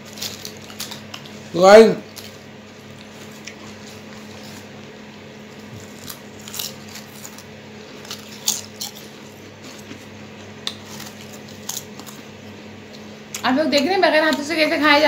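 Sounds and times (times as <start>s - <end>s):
potato chips crunching: 0.0s - 4.9s, 5.5s - 12.3s
steady low hum: 0.0s - 15.0s.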